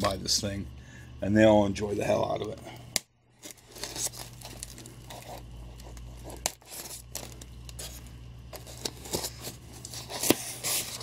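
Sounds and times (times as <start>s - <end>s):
scraping and tearing: 3.4s - 11.0s.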